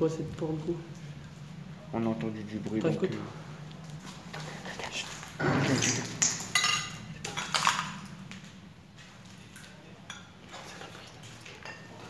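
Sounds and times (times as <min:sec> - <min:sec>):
metal objects clattering: 0:06.2 - 0:08.0.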